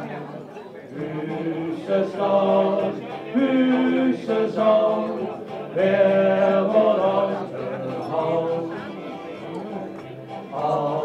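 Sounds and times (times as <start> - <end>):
man and woman singing: 0.9 - 11.0.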